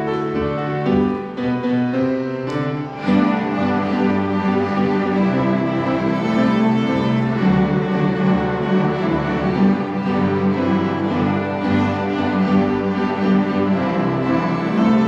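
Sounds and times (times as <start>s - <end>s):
string ensemble playing: 0.0s - 15.0s.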